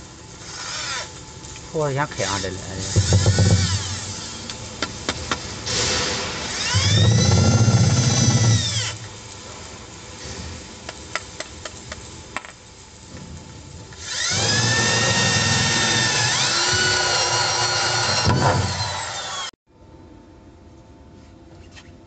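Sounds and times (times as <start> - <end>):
electric drill whining: 2.3 - 4.6, 5.7 - 9.1, 14.0 - 19.6.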